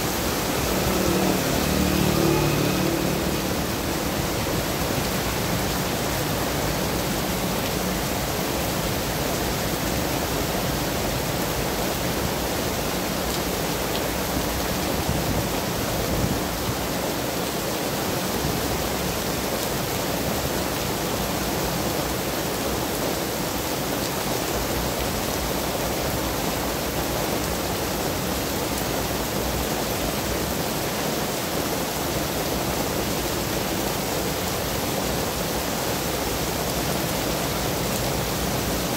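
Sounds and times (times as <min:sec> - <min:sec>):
rumble of passing traffic: 0:00.0 - 0:22.4
heavy rain on wet street: 0:00.0 - 0:38.9.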